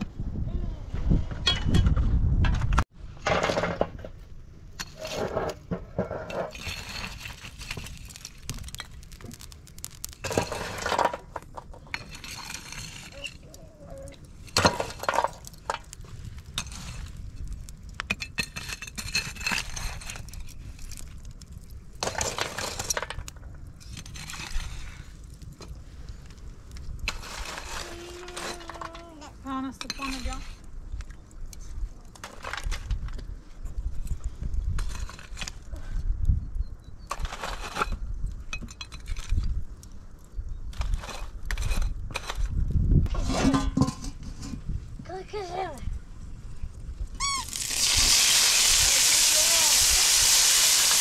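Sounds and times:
metal tool scraping embers: 0:03.2 - 0:30.7, 0:34.1 - 0:35.7, 0:37.0 - 0:45.4.

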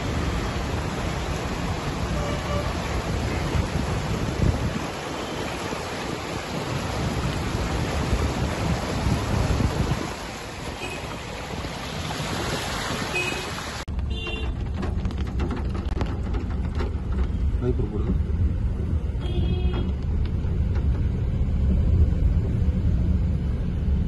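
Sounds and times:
floodwater flowing: 0:00.0 - 0:13.9
heavy rain: 0:00.0 - 0:13.9
vehicles driving through water: 0:00.0 - 0:24.0.

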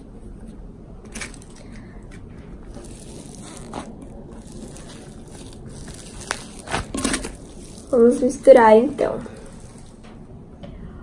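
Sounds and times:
clay crackling and tearing: 0:02.7 - 0:08.4.

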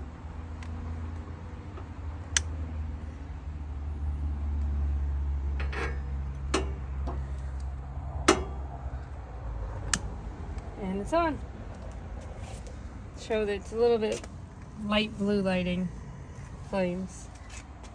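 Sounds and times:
steady low rumble: 0:04.6 - 0:17.9.

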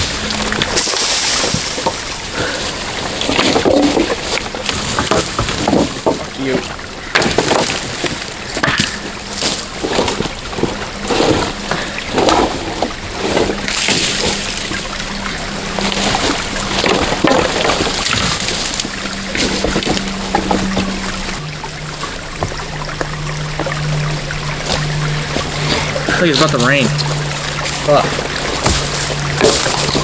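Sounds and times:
people wading through creek water: 0:00.0 - 0:30.0.

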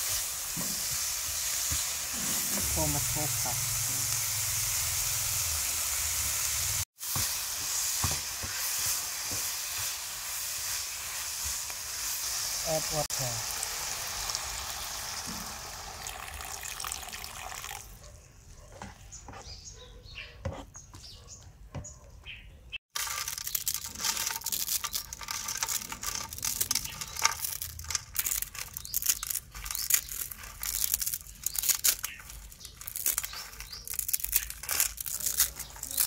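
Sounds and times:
water sizzling in hot pan: 0:00.0 - 0:17.8
dry noodles crushed by hand: 0:22.9 - 0:36.0.

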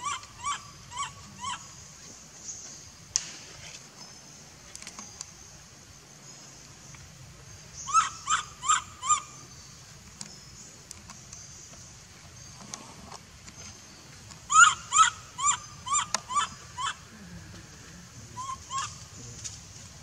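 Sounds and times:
high-pitched animal calls: 0:00.0 - 0:01.7, 0:07.9 - 0:09.4, 0:14.5 - 0:17.1, 0:18.3 - 0:19.1
steady high hiss: 0:00.0 - 0:20.0.

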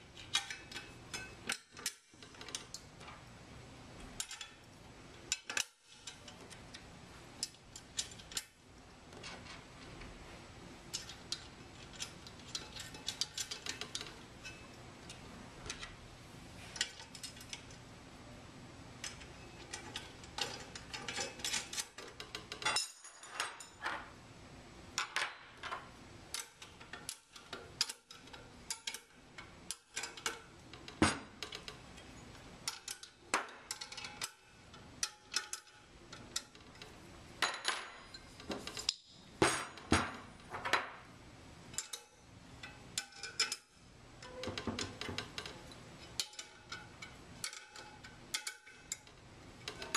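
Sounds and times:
small metallic clicks: 0:00.1 - 0:03.2, 0:25.0 - 0:37.0
metal parts clinking and knocking: 0:00.2 - 0:03.2, 0:05.3 - 0:06.7, 0:10.9 - 0:14.7, 0:19.0 - 0:24.1, 0:25.0 - 0:29.1, 0:29.7 - 0:41.0, 0:41.7 - 0:49.9.

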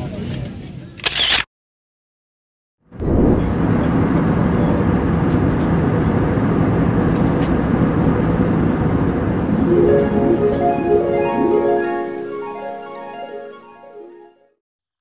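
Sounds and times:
airliner cabin engine rush: 0:03.1 - 0:09.6
plucked harp music: 0:09.5 - 0:14.5.

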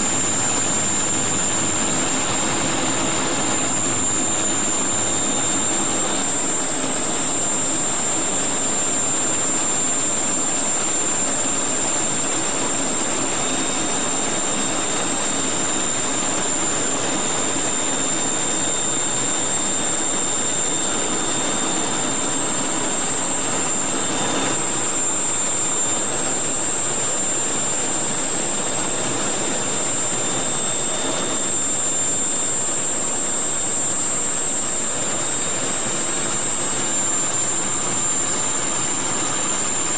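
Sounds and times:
jet cockpit rushing noise: 0:00.0 - 0:07.5
high jet whine: 0:00.0 - 0:10.1, 0:27.8 - 0:39.9.

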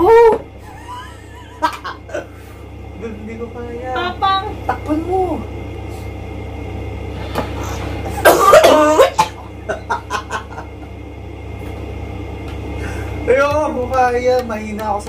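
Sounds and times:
steady low hum: 0:00.0 - 0:15.0
man laughing: 0:00.6 - 0:02.4, 0:08.1 - 0:11.0.

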